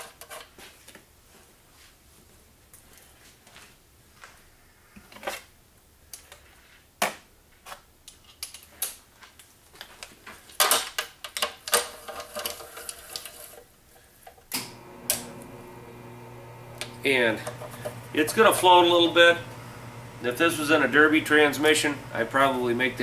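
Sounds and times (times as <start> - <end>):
low steady hum: 14.6 - 23.0.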